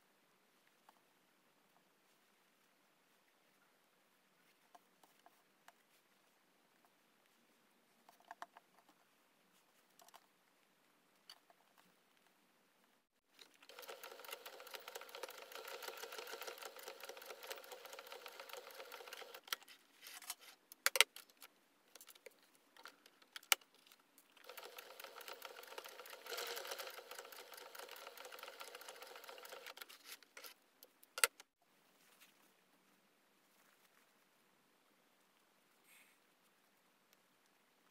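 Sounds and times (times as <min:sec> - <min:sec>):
sewing machine needle chatter: 0:13.4 - 0:19.5, 0:24.4 - 0:29.8.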